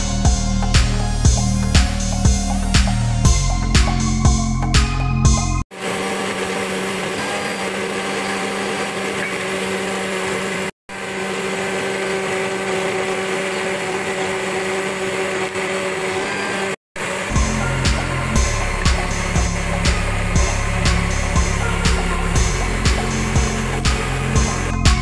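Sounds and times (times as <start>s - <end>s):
blender motor running: 5.7s - 25.0s.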